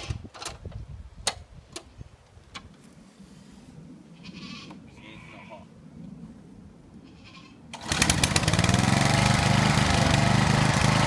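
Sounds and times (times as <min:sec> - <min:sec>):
animal bleat: 0:04.2 - 0:05.7, 0:07.0 - 0:07.6.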